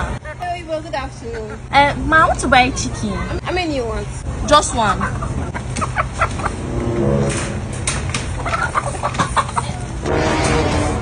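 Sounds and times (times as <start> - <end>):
chickens clucking: 4.5 - 10.0.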